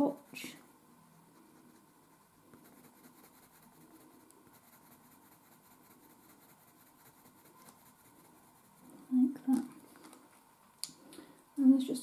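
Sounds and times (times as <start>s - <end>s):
pencil scratching on paper: 0.0s - 9.1s.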